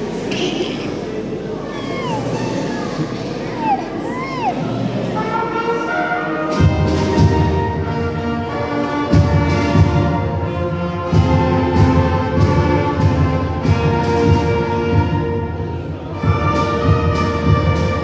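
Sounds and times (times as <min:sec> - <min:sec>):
low instruments: 0:00.0 - 0:06.8
wind band playing: 0:02.2 - 0:18.0.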